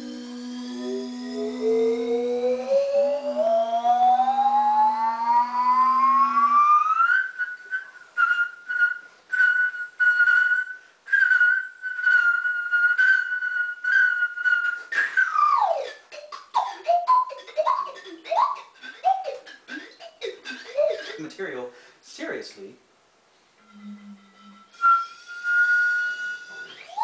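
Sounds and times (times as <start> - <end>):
low steady tone: 0.0 - 7.0, 23.6 - 26.9
high pulsing note: 0.0 - 7.5, 23.6 - 27.0
electronic instrument gliding tones: 0.0 - 10.5, 14.4 - 21.4, 23.6 - 27.0.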